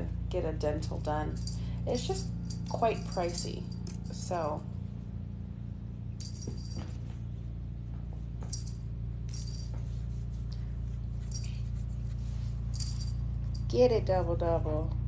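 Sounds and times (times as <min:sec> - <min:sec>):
steady low hum: 0:00.0 - 0:15.0
small bell jingling: 0:01.2 - 0:04.4, 0:06.1 - 0:07.2, 0:08.4 - 0:10.2, 0:11.0 - 0:13.8.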